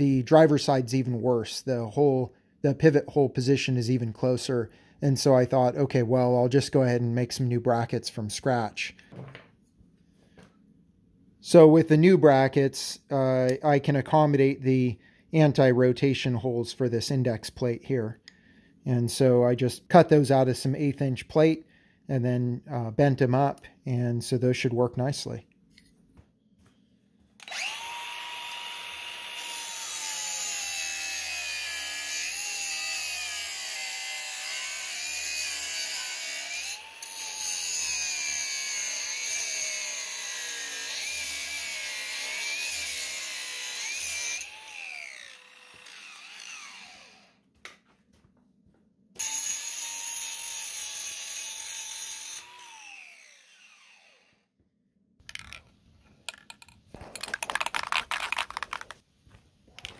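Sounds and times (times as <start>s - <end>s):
angle grinder cutting steel: 27.4s - 47.4s, 49.2s - 54.3s.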